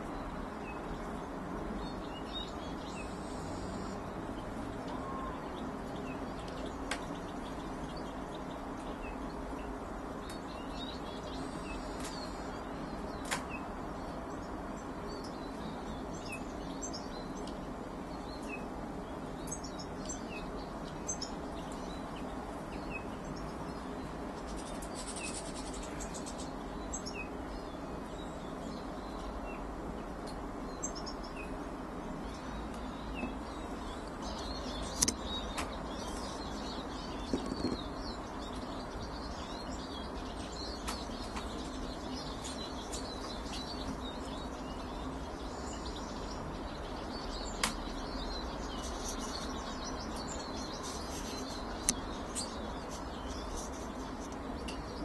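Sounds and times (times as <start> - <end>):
small birds chirping: 0.0 - 55.0
sharp click: 34.9 - 35.7, 47.6 - 47.8.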